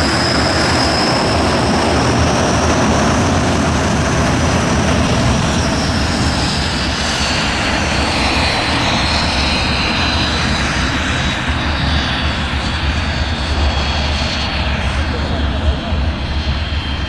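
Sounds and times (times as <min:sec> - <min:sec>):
jet engines rumbling and whining: 0:00.0 - 0:17.0.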